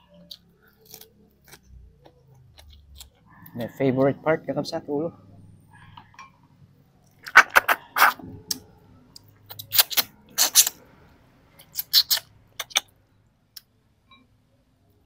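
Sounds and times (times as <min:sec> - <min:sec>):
chewing with crunches: 0:00.0 - 0:04.2
mouth smacks: 0:07.1 - 0:10.8, 0:11.6 - 0:12.9.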